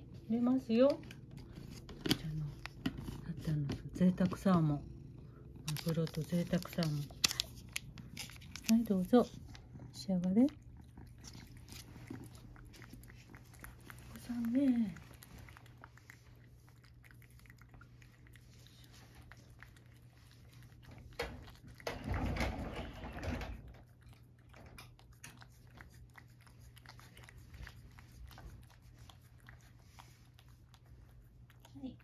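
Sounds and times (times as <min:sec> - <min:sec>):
steady low hum: 0:00.0 - 0:22.5
cat licking and chewing: 0:00.0 - 0:32.0.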